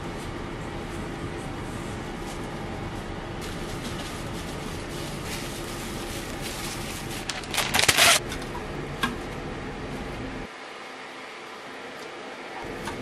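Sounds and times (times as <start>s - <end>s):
steady background hum: 0.0s - 13.0s
paper rustling: 1.6s - 8.2s
baking paper tearing: 3.4s - 8.2s.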